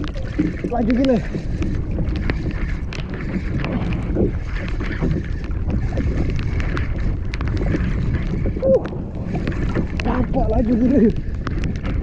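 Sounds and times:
wind noise on microphone: 0:00.0 - 0:12.0.

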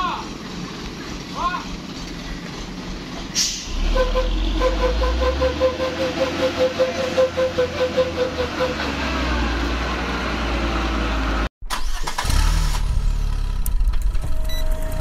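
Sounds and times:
truck diesel engine under load: 0:00.0 - 0:15.0.

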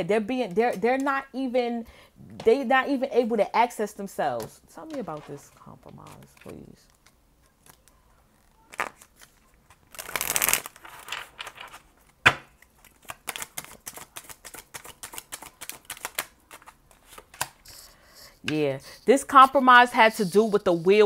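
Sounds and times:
cards rustling: 0:04.9 - 0:18.0
cards snapping: 0:08.7 - 0:10.8, 0:12.5 - 0:17.6.

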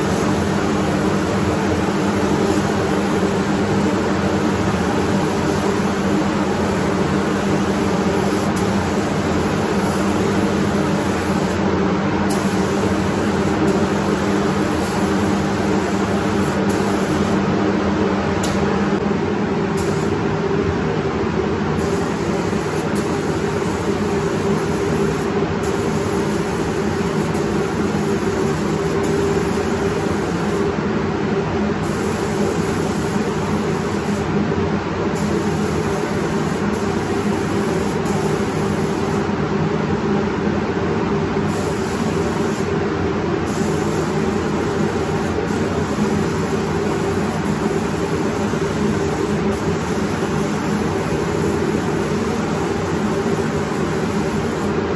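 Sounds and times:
paint spray gun hissing: 0:00.0 - 0:11.7, 0:12.3 - 0:17.5, 0:19.8 - 0:20.2, 0:21.8 - 0:30.7, 0:31.8 - 0:34.4, 0:35.1 - 0:39.3, 0:41.5 - 0:42.8, 0:43.4 - 0:54.9
ventilation fans humming: 0:00.0 - 0:54.9.

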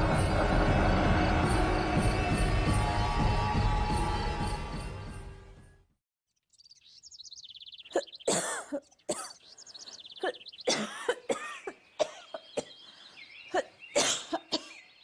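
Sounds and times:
birds chirping: 0:06.4 - 0:15.0
woman coughing: 0:07.9 - 0:09.4, 0:10.2 - 0:12.7, 0:13.5 - 0:14.8.

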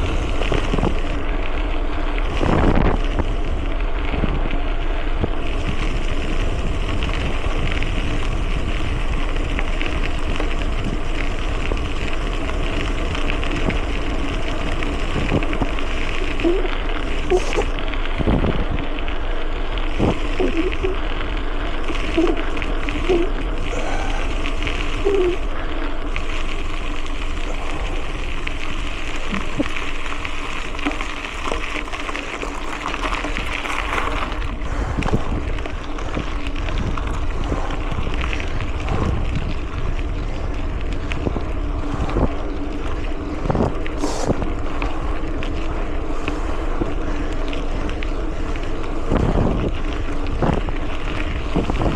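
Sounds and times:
wind on microphone: 0:00.0 - 0:01.2, 0:02.2 - 0:04.5, 0:05.2 - 0:18.9, 0:19.9 - 0:21.1, 0:32.9 - 0:51.9
bike tyre rumble: 0:00.0 - 0:51.9.

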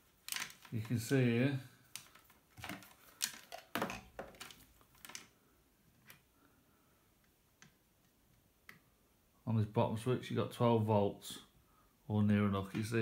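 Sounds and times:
faint plastic clicks and taps: 0:01.9 - 0:06.3, 0:07.2 - 0:08.9.

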